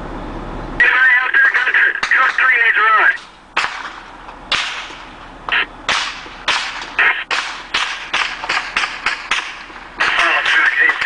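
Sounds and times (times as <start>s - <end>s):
gunfire cracks: 3.2s - 5.2s, 5.9s - 11.0s.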